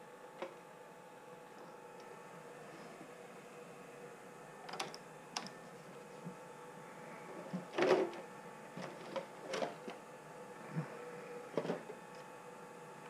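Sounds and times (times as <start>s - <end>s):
tools and plastic parts clattering: 7.6s - 8.2s, 8.8s - 10.0s, 11.6s - 11.9s.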